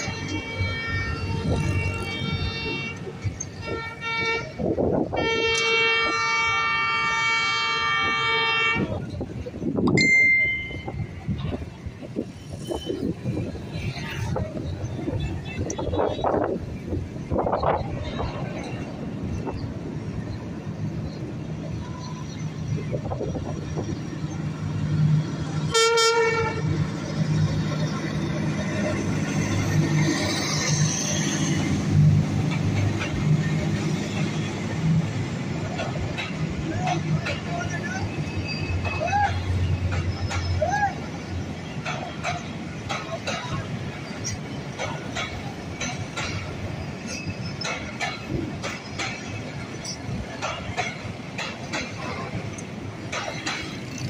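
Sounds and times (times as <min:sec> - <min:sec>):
traffic hum: 0:00.0 - 0:54.0
train rumbling past: 0:00.0 - 0:54.0
horn blast: 0:25.7 - 0:26.7.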